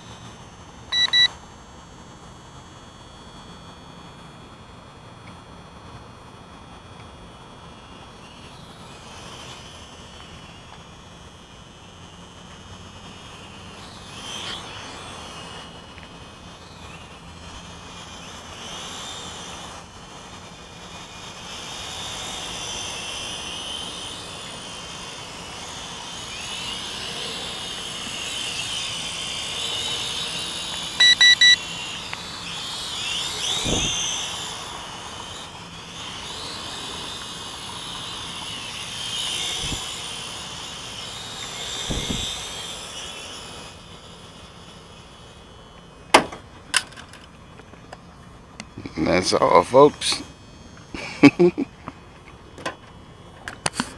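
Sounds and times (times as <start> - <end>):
quadcopter propellers buzzing: 0.0 - 53.9
short electronic beeps: 0.9 - 1.4, 31.0 - 31.6.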